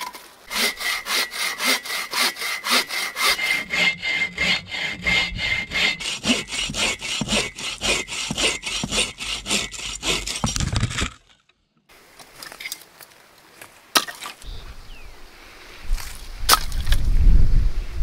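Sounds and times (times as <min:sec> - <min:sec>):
hand saw cutting log: 0:00.5 - 0:11.1.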